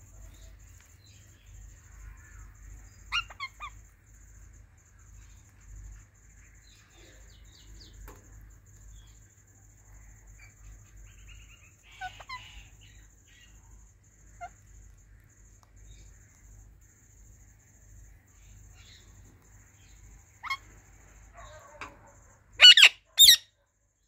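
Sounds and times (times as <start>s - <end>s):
shrill parakeet calls: 2.2s - 3.8s, 11.1s - 13.6s, 14.3s - 14.7s, 19.8s - 21.9s, 22.6s - 23.6s
parakeets chirping: 2.9s - 3.8s, 11.1s - 13.6s, 14.3s - 14.6s, 19.8s - 20.7s, 22.6s - 23.4s.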